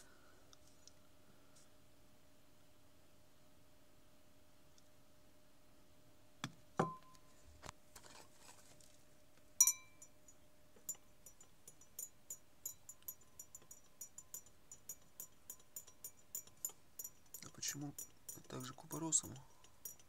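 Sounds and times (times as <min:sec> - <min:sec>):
metal spoon clinking in glass: 0:09.6 - 0:10.2, 0:10.8 - 0:20.0.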